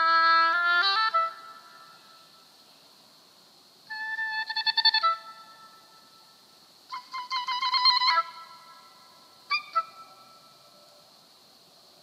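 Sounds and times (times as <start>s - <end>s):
oboe fluttering repeated notes: 6.9s - 10.6s.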